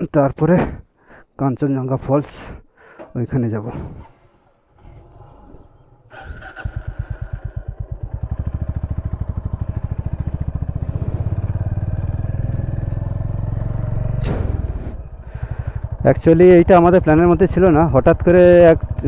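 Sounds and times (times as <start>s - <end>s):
motorcycle engine starting and running: 4.2s - 19.0s.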